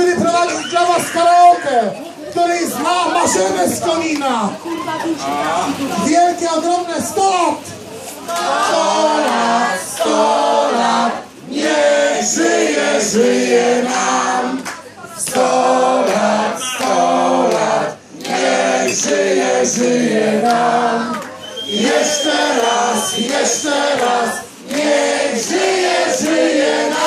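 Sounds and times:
crowd singing: 8.0s - 27.0s.

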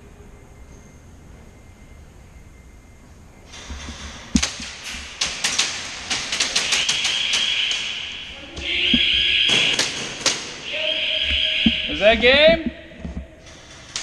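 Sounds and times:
airsoft guns firing: 4.4s - 12.0s
steady high-pitched tone: 10.6s - 13.4s.

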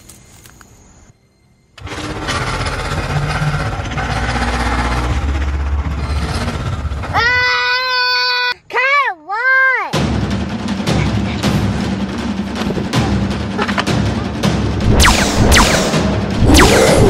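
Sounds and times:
low rough growling: 2.2s - 7.2s.

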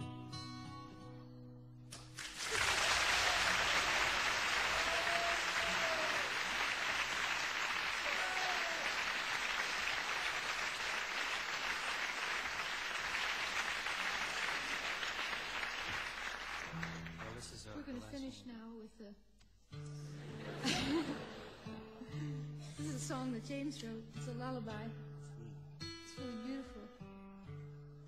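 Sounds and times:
crowd applauding: 2.0s - 17.8s, 20.3s - 21.7s.

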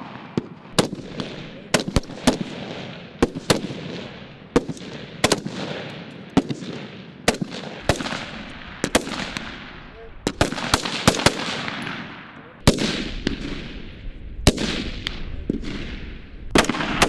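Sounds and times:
rifle shots with echo: 0.0s - 17.0s.

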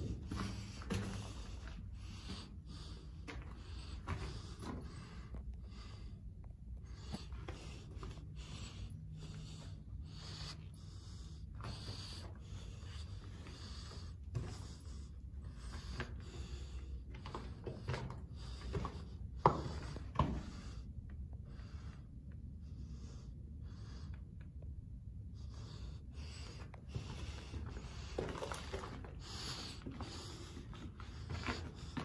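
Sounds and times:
person breathing: 0.0s - 24.4s.

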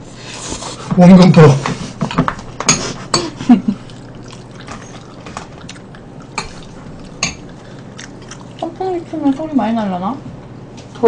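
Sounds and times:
utensils clinking against bowls: 1.0s - 9.8s
eating sounds: 1.8s - 10.0s.

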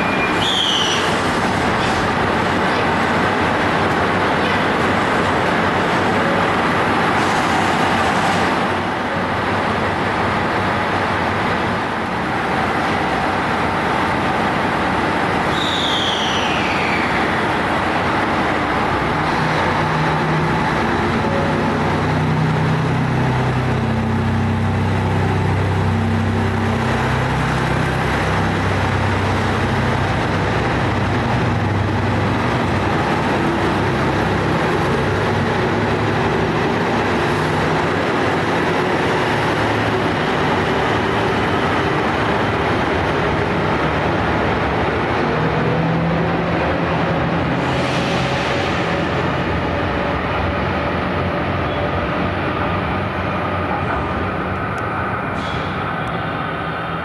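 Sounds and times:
diesel train engines: 0.0s - 57.0s
short falling whistle: 0.2s - 1.1s, 15.5s - 17.0s.

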